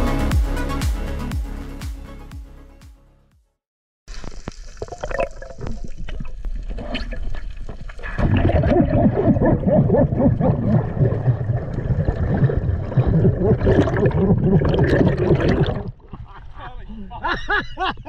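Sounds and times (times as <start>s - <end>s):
underwater bubbling and gurgling: 4.1s - 16.2s.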